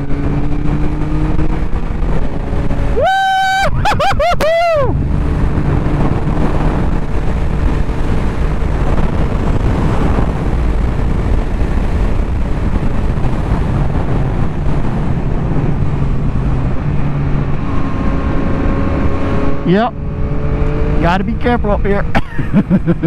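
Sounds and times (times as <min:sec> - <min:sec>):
motorcycle engine cruising: 0:00.0 - 0:23.0
wind and road noise: 0:00.0 - 0:23.0.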